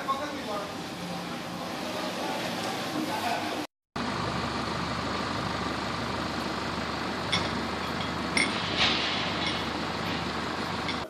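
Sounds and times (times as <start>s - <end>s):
boat engine idling: 4.0s - 11.0s.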